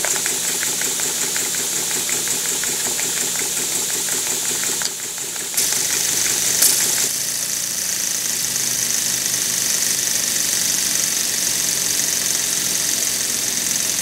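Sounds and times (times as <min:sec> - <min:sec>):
small steam engine beat: 0:00.0 - 0:14.0
high hiss of steam: 0:05.6 - 0:07.6.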